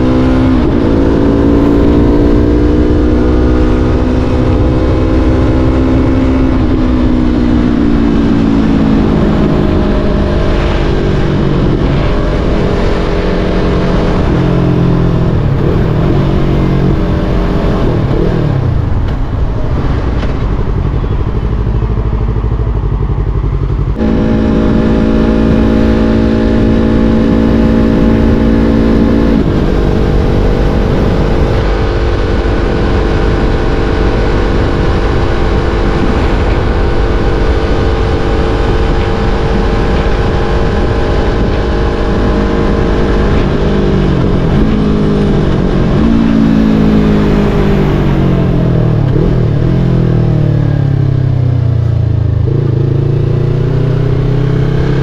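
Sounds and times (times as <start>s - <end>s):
motorcycle engine changing revs: 20.8s - 51.4s.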